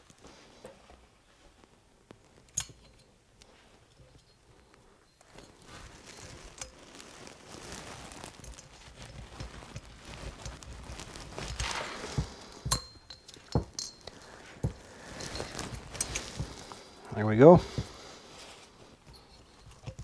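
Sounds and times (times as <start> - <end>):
hands handling parts rustle: 0.0 - 20.0
sharp metal clicks and clinks: 12.7 - 14.2.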